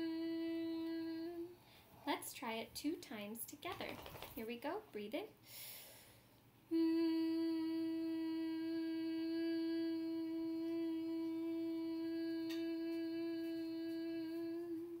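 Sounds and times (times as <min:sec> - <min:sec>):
woman humming a long note: 0:00.0 - 0:01.5, 0:06.7 - 0:15.0.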